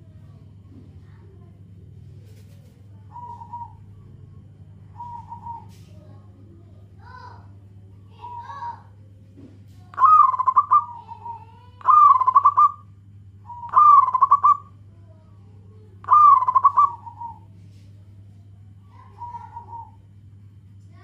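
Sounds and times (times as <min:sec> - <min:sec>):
faint low hum: 0:00.0 - 0:21.0
dove cooing: 0:02.2 - 0:06.2, 0:08.1 - 0:08.9, 0:09.9 - 0:12.9, 0:13.5 - 0:14.8, 0:16.0 - 0:17.5, 0:18.9 - 0:20.1.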